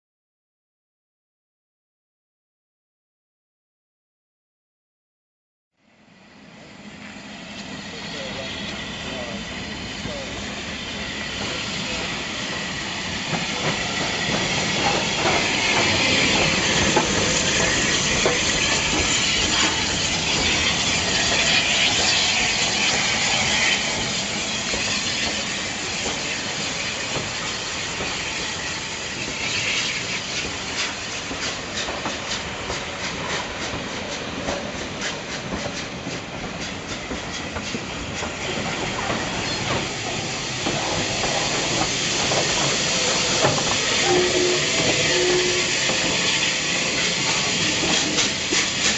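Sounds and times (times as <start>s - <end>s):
locomotive steam hiss: 6.2s - 48.9s
train wheels clicking over rail joints: 11.2s - 48.9s.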